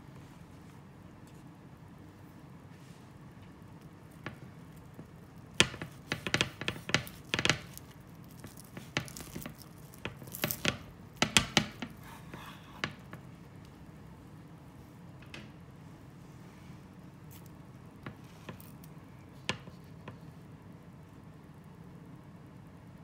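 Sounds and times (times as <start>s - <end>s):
knife cutting through bread: 4.8s - 13.0s.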